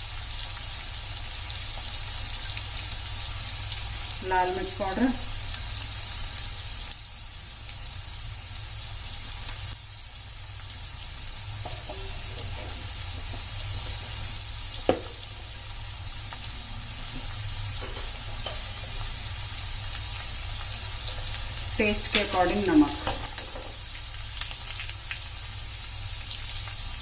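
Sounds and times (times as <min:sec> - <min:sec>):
vegetables sizzling in oil: 0:00.0 - 0:27.0
small crackles: 0:23.7 - 0:25.5.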